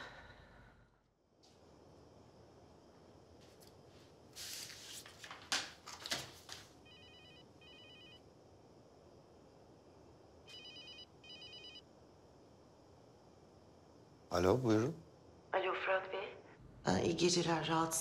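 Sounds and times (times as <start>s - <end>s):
mobile phone ringing: 6.8s - 8.2s, 10.5s - 11.8s.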